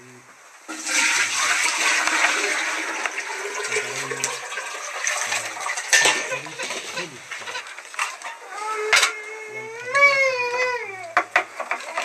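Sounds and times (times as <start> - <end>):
water pouring into container: 0.7 - 8.1.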